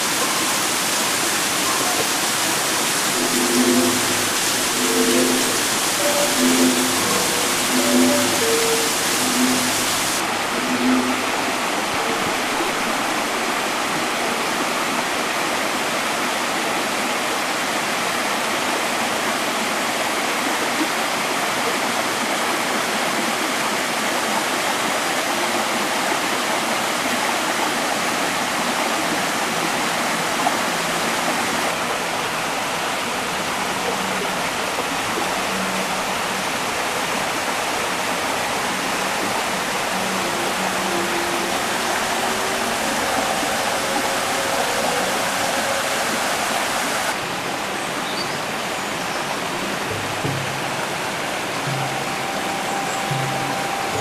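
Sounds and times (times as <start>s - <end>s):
stream rushing over rocks: 0.0s - 54.0s.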